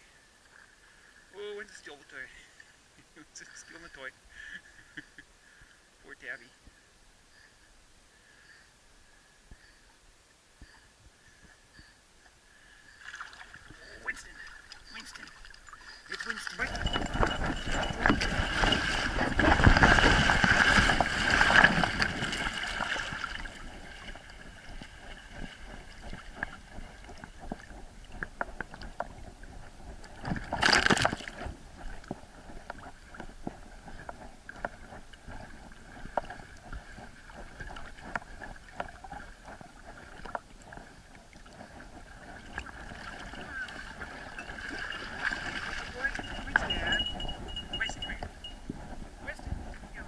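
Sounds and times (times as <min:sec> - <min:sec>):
water lapping and gurgling: 0:12.3 - 0:50.0
water splashing: 0:12.9 - 0:29.1, 0:30.0 - 0:32.0, 0:33.9 - 0:48.2.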